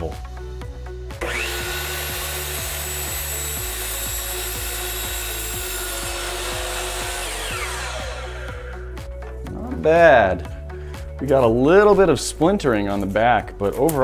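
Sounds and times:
saw blade cutting bamboo blind: 1.2s - 8.8s
miter saw motor: 1.2s - 8.9s.

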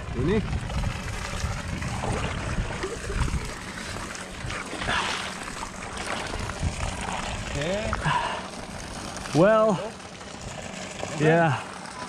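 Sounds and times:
water sloshing and splashing: 0.0s - 12.0s.

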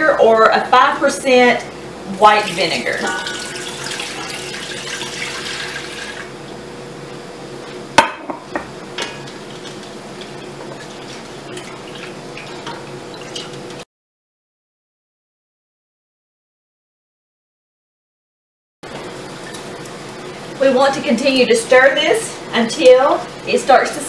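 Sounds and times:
liquid pouring into pot: 2.2s - 6.3s
wooden spoon knocking pot: 8.0s - 8.8s.

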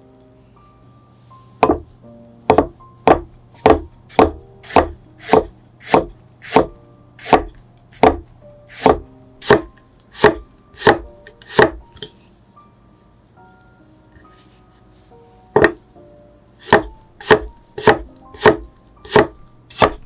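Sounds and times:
knife chopping on wooden board: 1.6s - 1.9s, 2.5s - 11.8s, 15.6s - 15.8s, 16.6s - 20.0s.

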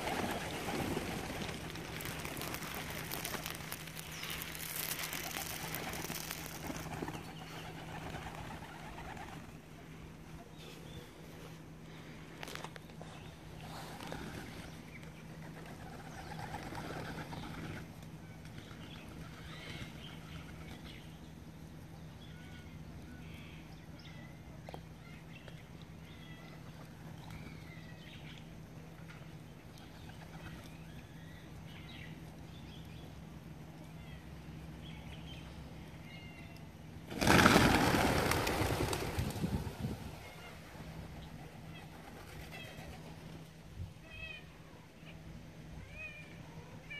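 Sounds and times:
pigeon wingbeats flurry: 0.0s - 9.6s, 15.4s - 20.9s, 37.0s - 43.3s.

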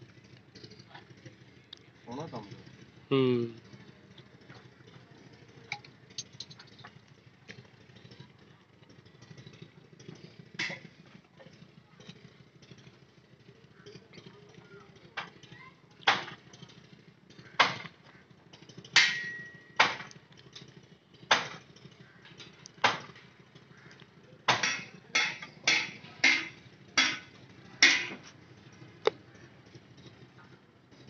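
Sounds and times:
metallic hammer knocks: 19.0s - 20.1s, 24.5s - 28.2s.

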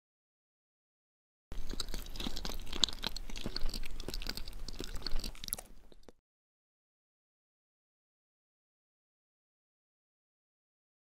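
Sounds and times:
crunchy chewing: 1.5s - 6.2s.

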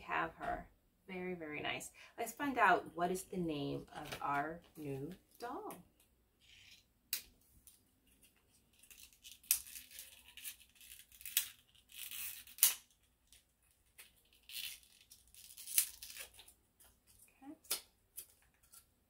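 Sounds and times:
plastic packaging crinkling: 8.5s - 17.3s.

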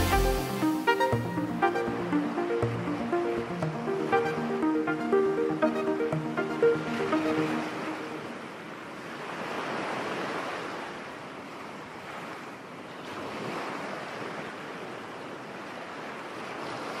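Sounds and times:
sea waves washing on shore: 5.7s - 17.0s.

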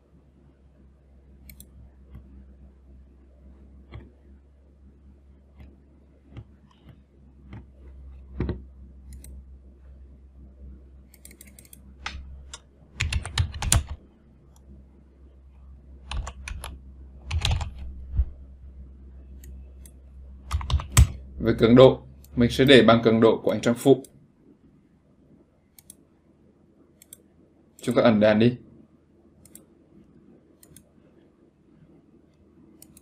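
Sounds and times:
faint low hum: 0.0s - 33.0s
key or mouse clicks: 1.4s - 2.2s, 8.4s - 9.4s, 11.1s - 14.6s, 16.1s - 17.9s, 19.4s - 21.2s, 25.8s - 26.0s, 27.0s - 27.2s, 30.6s - 30.9s, 32.8s - 33.0s
keyboard typing: 11.1s - 14.7s, 16.0s - 18.3s, 19.4s - 21.2s.

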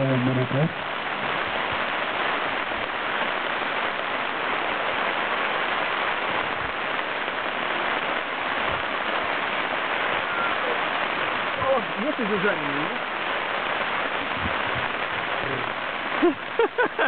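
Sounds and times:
heavy rain falling: 0.0s - 17.0s.

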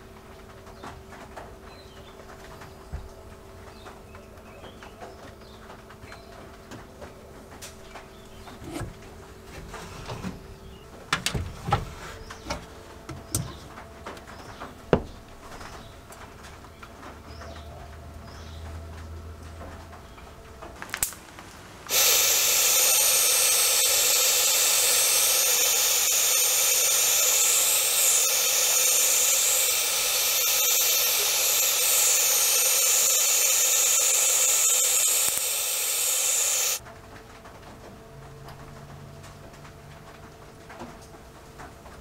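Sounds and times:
aerosol spray paint hissing: 21.9s - 36.8s
spray can click: 21.9s - 36.8s.

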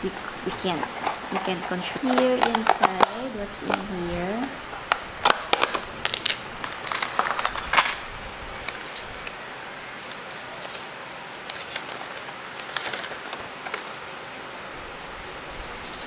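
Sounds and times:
paper rustling and crinkling: 0.0s - 14.1s
plastic box clicks: 0.7s - 3.8s.

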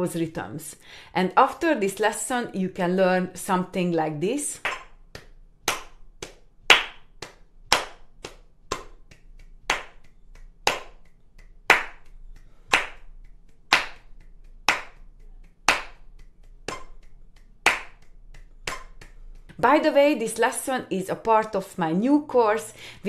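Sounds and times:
rhythmic hand claps: 4.5s - 22.6s.

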